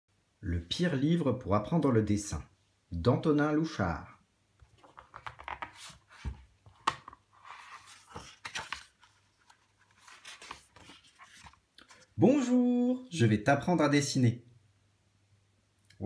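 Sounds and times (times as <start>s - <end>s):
book pages turning: 4.6s - 12.2s.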